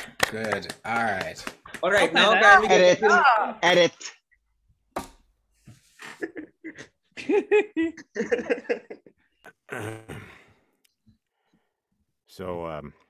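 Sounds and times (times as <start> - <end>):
people laughing: 1.8 - 4.1, 6.0 - 9.2
drawn-out vocal sound: 9.6 - 10.6.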